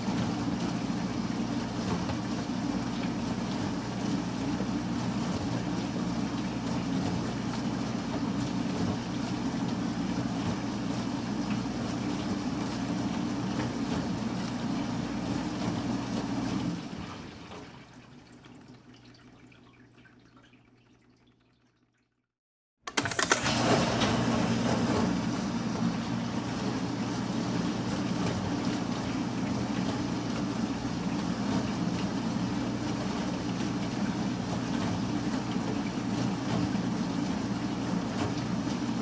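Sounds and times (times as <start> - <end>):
shredding machine running: 22.9 - 39.0.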